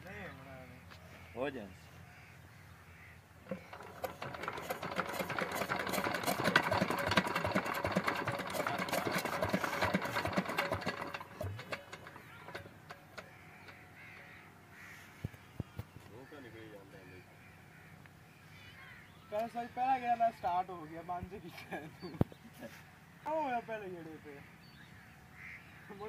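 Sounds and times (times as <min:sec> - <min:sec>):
diesel engine clattering: 0:03.5 - 0:14.3.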